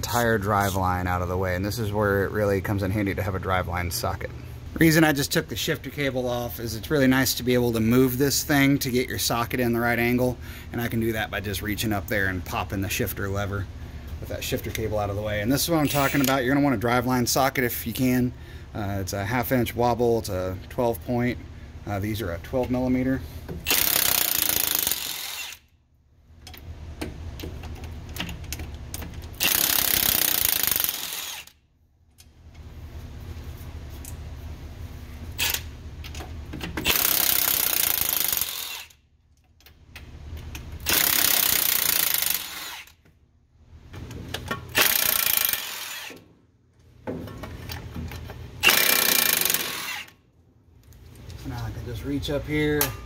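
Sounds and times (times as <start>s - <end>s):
impact wrench hammering: 23.5s - 25.6s, 29.4s - 31.5s, 36.7s - 39.0s, 40.8s - 42.9s, 44.7s - 46.2s, 48.6s - 50.1s.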